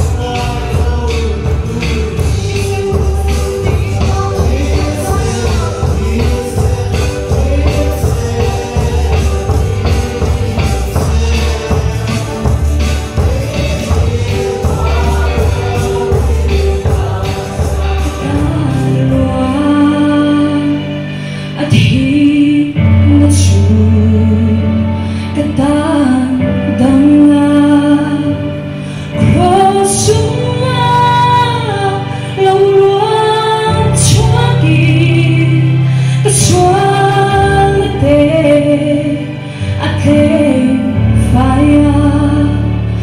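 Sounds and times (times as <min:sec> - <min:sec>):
mixed choir singing: 0:00.0 - 0:20.9.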